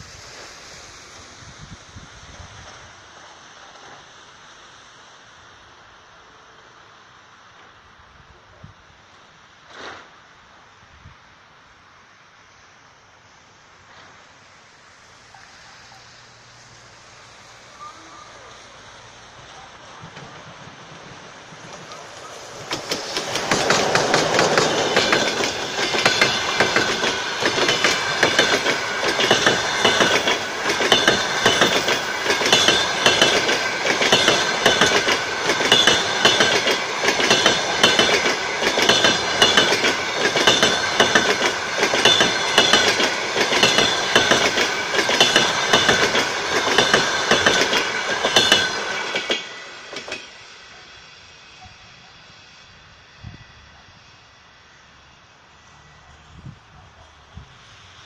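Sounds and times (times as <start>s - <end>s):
train wheels clattering over rail joints: 19.2s - 50.8s.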